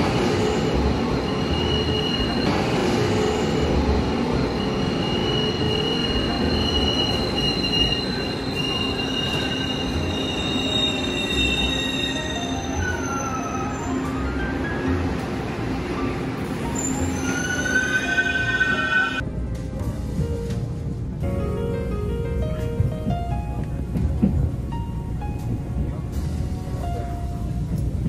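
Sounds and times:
train rumbling: 0.0s - 28.0s
train wheels squealing: 0.2s - 2.5s, 4.5s - 14.7s, 16.6s - 19.2s.

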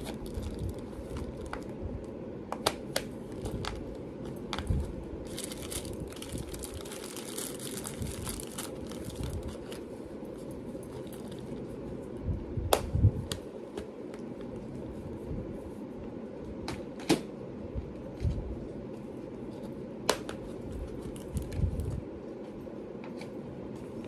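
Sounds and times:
plastic bags crinkling: 0.0s - 1.7s, 3.3s - 9.8s, 10.8s - 11.6s
low room hum: 0.0s - 24.0s.

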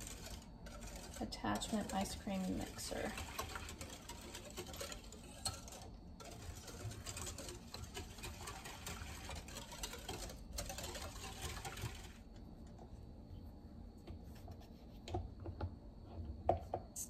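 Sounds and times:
whisk clicking against glass bowl: 0.0s - 12.1s.

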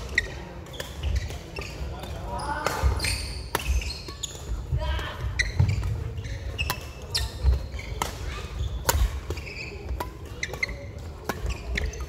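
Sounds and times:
rackets striking shuttlecock: 0.0s - 4.6s, 5.4s - 12.0s
shoe squeaks: 0.0s - 12.0s
footfalls on court floor: 2.8s - 6.4s.

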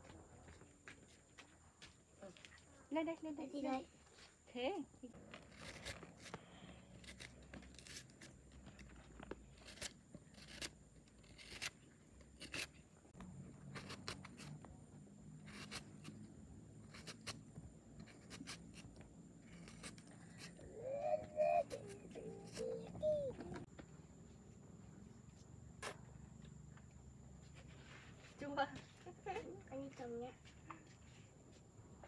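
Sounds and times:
knife cutting fruit: 5.3s - 12.8s, 13.4s - 14.7s, 15.4s - 23.5s, 25.8s - 26.2s.

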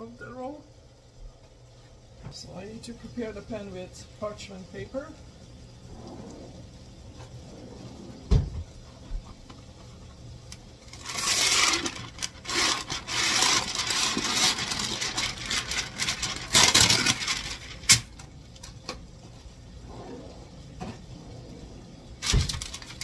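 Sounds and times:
paper crinkling: 10.8s - 18.2s, 22.2s - 23.0s.

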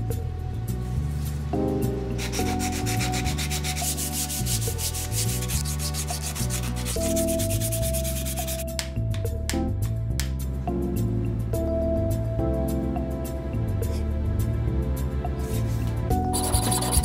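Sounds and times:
background music: 0.0s - 17.0s
sandpaper rubbing on wood: 2.2s - 8.6s, 16.4s - 17.0s.

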